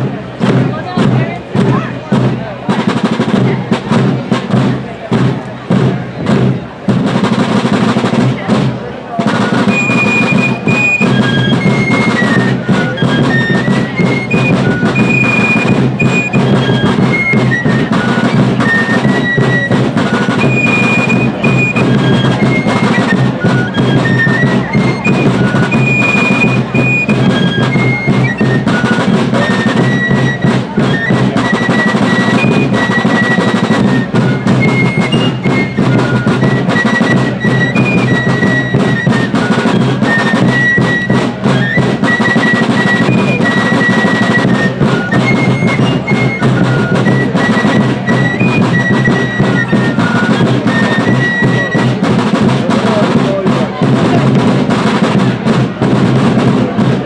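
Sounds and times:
snare and bass drums: 0.0 - 57.0
fifes playing high melody: 9.3 - 51.1.

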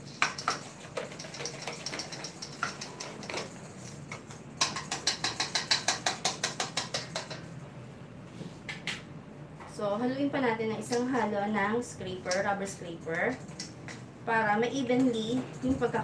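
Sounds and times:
whisk clicking against metal bowl: 0.0 - 7.5.

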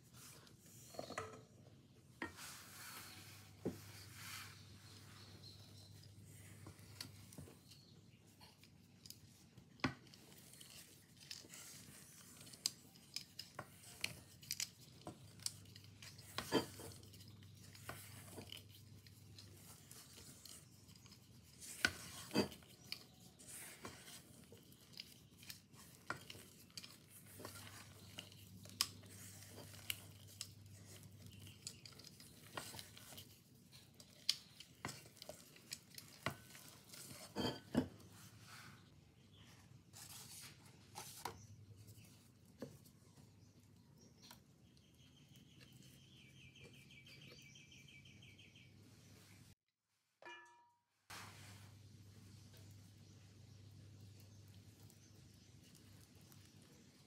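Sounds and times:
spatula scraping batter in bowl: 10.0 - 38.9.

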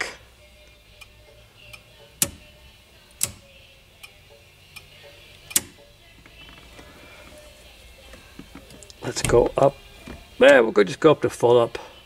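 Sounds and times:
steering column clicks: 1.7 - 2.4, 3.1 - 3.4, 4.8 - 5.8
faint mechanical ticks: 4.0 - 5.8.

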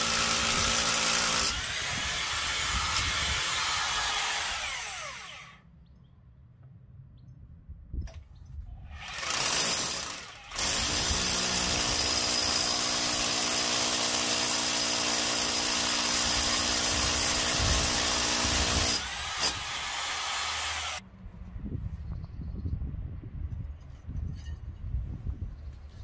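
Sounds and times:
rotary hammer drilling into concrete: 0.0 - 5.6, 8.9 - 21.0.

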